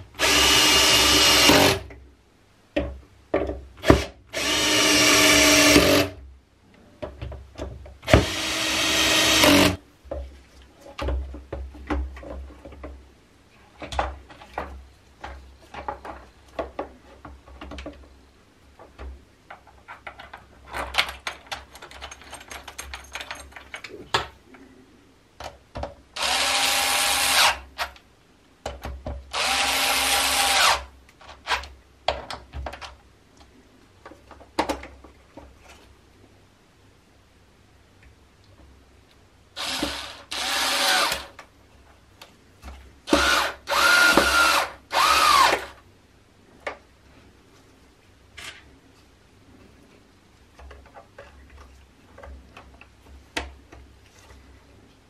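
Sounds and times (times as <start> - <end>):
electric screwdriver driving screws: 0.2 - 1.8, 3.9 - 6.1, 8.1 - 9.8, 26.2 - 27.6, 29.3 - 30.9, 39.6 - 41.3, 43.1 - 45.8
plastic parts clicking and knocking: 10.9 - 13.0, 13.7 - 18.2, 18.8 - 24.4, 25.4 - 26.0, 28.6 - 29.3, 31.2 - 35.6, 50.5 - 53.9.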